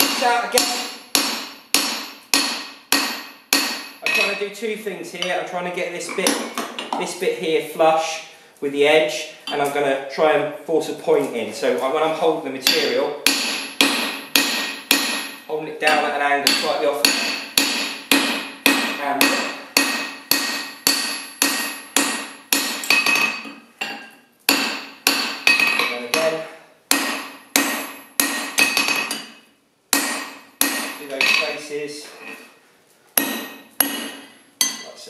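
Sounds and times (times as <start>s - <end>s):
hammer striking steel on anvil: 0.0s - 4.4s, 12.6s - 32.4s, 33.2s - 35.0s.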